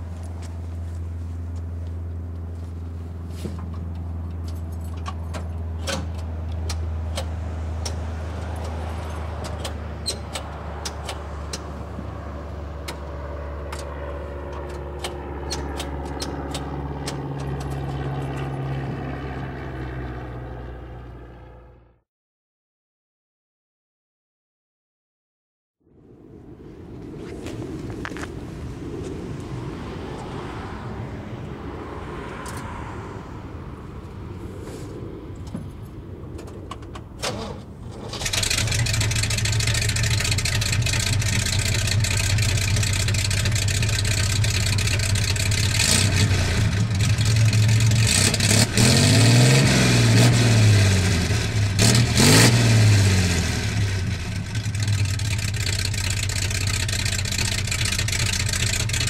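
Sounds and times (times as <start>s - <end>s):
car engine idling and revving: 0.0s - 22.0s, 28.9s - 59.0s.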